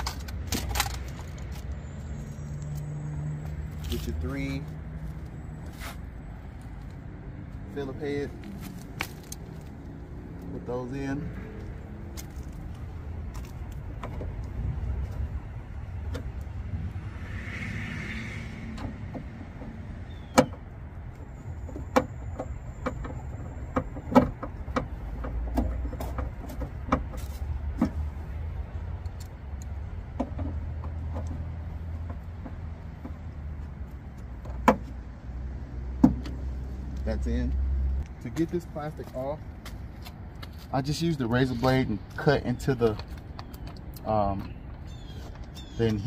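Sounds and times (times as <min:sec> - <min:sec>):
steady low rumble: 0:00.0 - 0:21.7.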